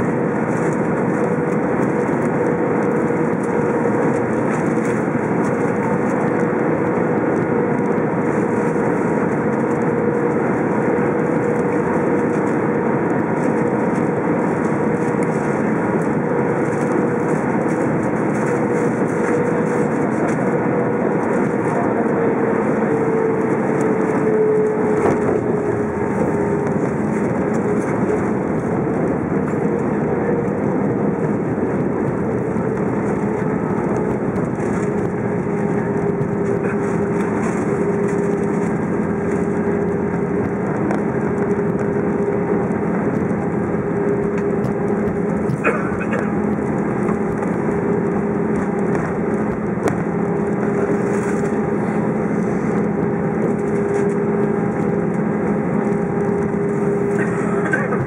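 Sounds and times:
airplane cabin engine rumble: 0:00.0 - 0:58.0.

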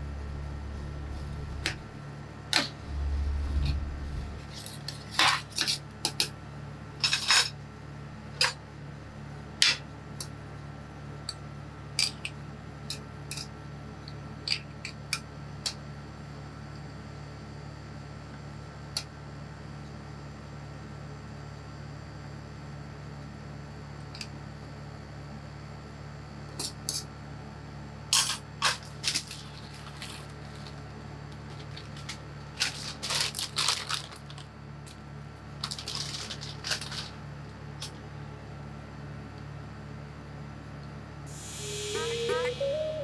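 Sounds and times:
low hum: 0:00.0 - 0:05.0.

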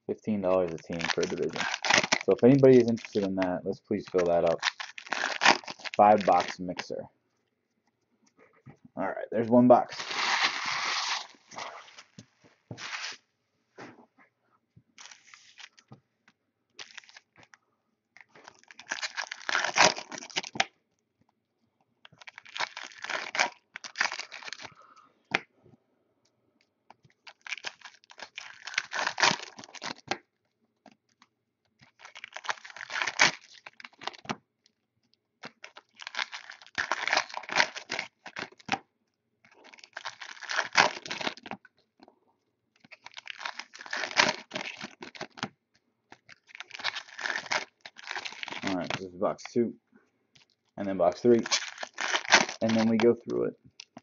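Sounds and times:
foil wrappers tearing and crinkling: 0:00.5 - 0:03.4, 0:04.0 - 0:06.8, 0:09.9 - 0:12.0, 0:15.0 - 0:15.8, 0:16.8 - 0:17.3, 0:18.3 - 0:20.7, 0:22.1 - 0:24.7, 0:27.2 - 0:30.2, 0:31.8 - 0:34.4, 0:35.4 - 0:38.8, 0:39.5 - 0:41.6, 0:42.8 - 0:45.5, 0:46.1 - 0:49.0, 0:50.4 - 0:54.0.

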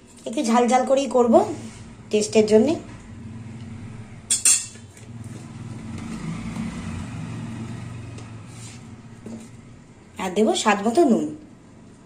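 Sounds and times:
low mechanical hum: 0:00.0 - 0:12.0
spoon clinking on steel plate: 0:04.3 - 0:04.8.

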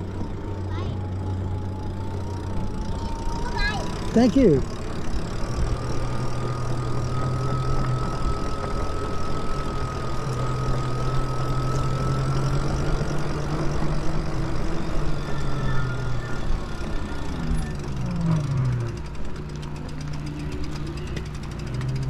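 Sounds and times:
electric bike motor humming: 0:00.0 - 0:22.0
thin high whine: 0:05.8 - 0:19.7.

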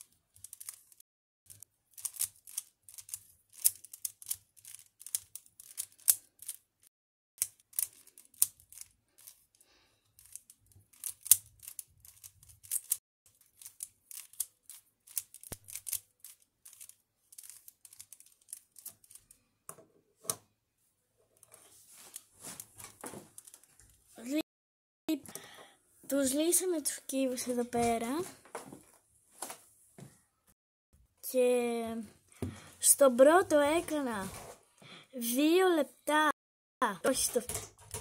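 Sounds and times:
puzzle cube layers clicking: 0:00.4 - 0:01.0, 0:01.6 - 0:06.6, 0:07.4 - 0:09.4, 0:10.2 - 0:19.2.

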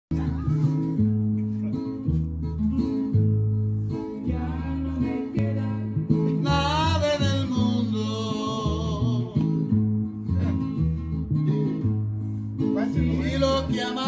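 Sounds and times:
person singing: 0:00.1 - 0:01.0, 0:04.2 - 0:09.6, 0:12.8 - 0:14.0
guitars: 0:00.1 - 0:14.0
walking bass line: 0:00.1 - 0:14.0.

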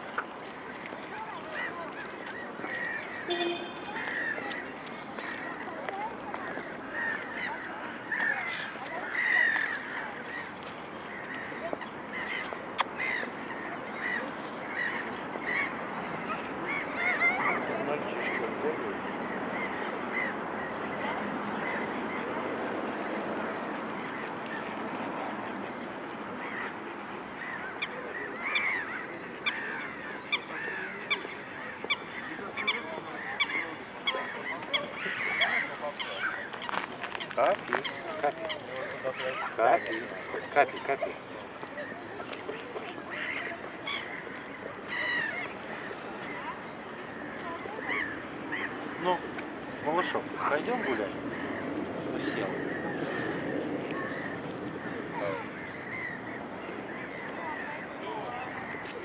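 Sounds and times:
waterbirds calling: 0:00.0 - 0:59.0
waterfowl honking: 0:02.6 - 0:04.5, 0:27.4 - 0:41.1.

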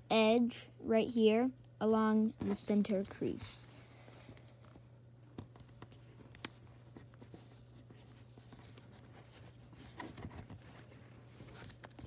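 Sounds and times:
steady low hum: 0:00.0 - 0:12.0
paper rustling while folded: 0:07.0 - 0:12.0.

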